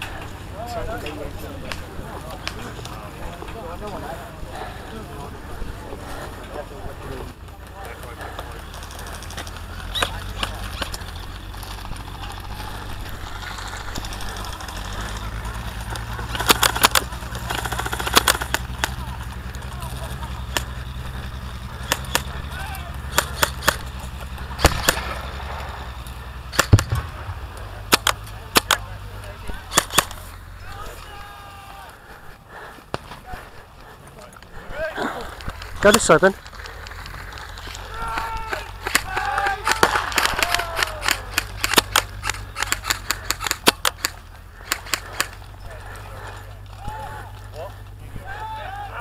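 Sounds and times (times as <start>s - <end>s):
low rumble: 23.9s - 28.6s
airsoft gun shots: 24.5s - 25.3s, 26.5s - 28.9s, 29.6s - 30.2s, 38.8s - 45.4s
heavy bang: 26.5s - 28.7s.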